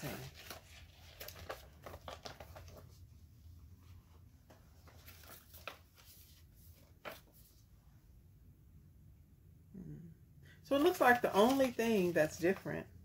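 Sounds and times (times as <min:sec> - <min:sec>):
paper rustling: 0:00.0 - 0:03.2, 0:03.8 - 0:07.7, 0:10.7 - 0:12.8.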